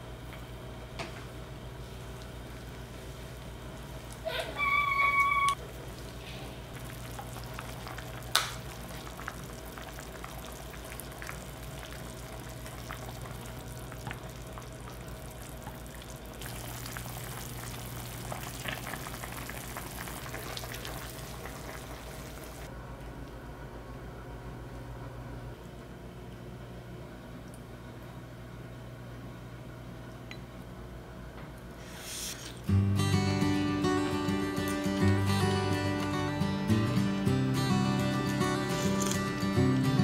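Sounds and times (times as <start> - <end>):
food sizzling in a frying pan: 6.8 - 22.7.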